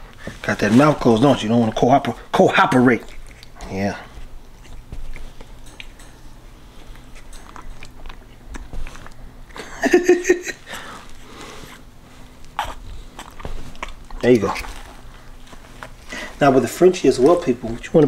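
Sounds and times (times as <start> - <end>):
puppy licking and smacking: 1.7 - 9.6, 12.4 - 15.8.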